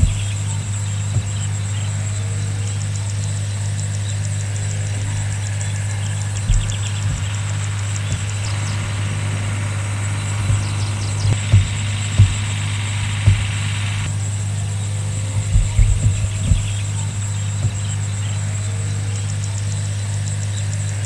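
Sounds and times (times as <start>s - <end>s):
brief low thumps: 0.0s - 1.7s, 4.9s - 14.2s, 15.3s - 18.0s
low mechanical hum: 0.0s - 21.0s
rapid high ticking: 0.0s - 21.0s.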